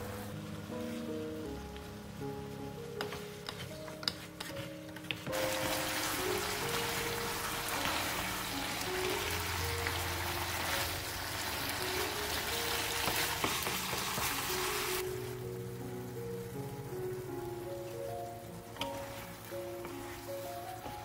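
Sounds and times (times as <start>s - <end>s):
background music with held notes: 0.0s - 21.0s
wooden spatula stirring: 2.5s - 15.0s, 17.8s - 21.0s
sauce sizzling in a pan: 5.3s - 21.0s.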